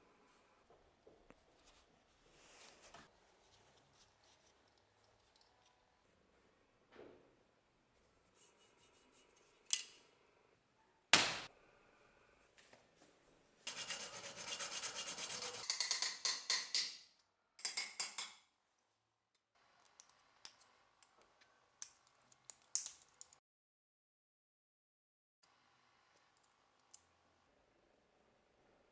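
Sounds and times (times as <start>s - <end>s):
hand tools scraping on metal: 13.7s - 16.2s.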